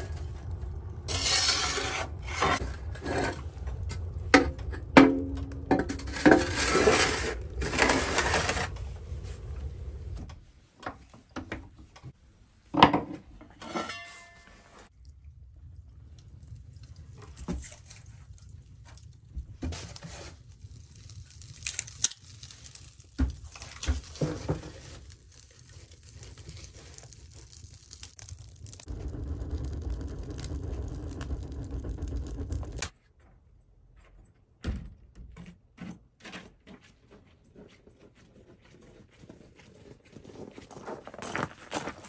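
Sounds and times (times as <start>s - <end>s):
wood fire crackling: 0.0s - 10.6s, 14.8s - 32.9s
fire low rumble: 0.0s - 10.7s, 14.8s - 33.0s.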